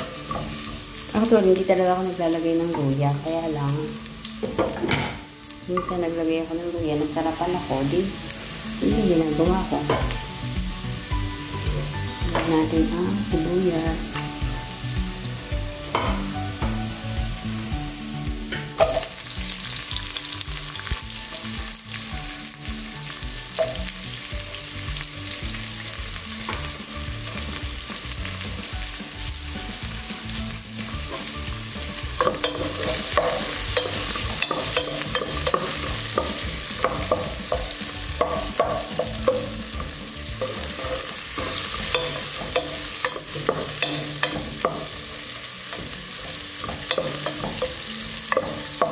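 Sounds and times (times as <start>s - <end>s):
onions sizzling in hot oil: 0.0s - 48.9s
spatula scraping and knocking pot: 32.2s - 45.0s.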